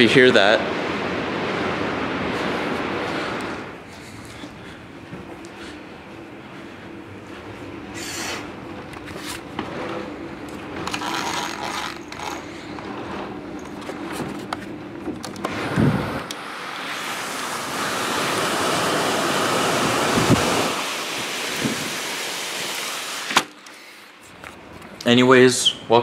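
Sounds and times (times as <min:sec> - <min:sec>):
heavy rain hiss: 0:15.5 - 0:24.0.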